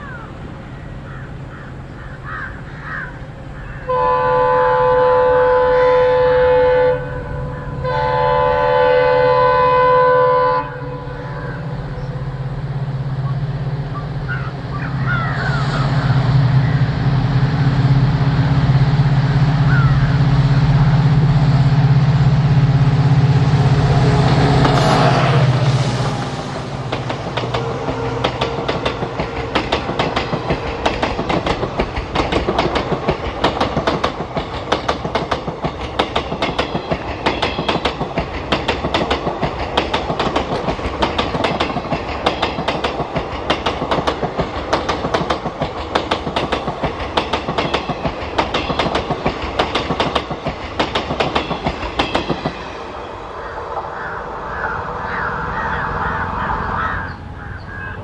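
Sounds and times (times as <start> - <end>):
crows cawing: 0.0 - 4.0, 11.1 - 11.8, 13.9 - 16.2, 19.6 - 20.2, 53.2 - 58.0
train rumble: 0.0 - 58.0
train wheels clicking over rail joints: 23.6 - 52.8.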